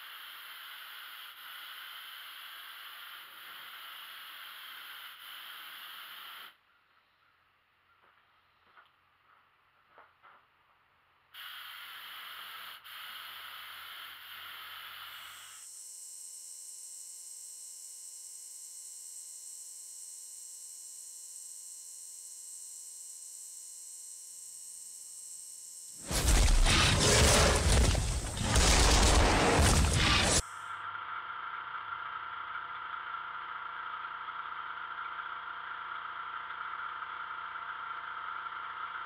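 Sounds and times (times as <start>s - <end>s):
aerosol spray can hissing: 0.0s - 6.6s, 11.4s - 15.6s
loud rushing noise: 26.0s - 30.4s.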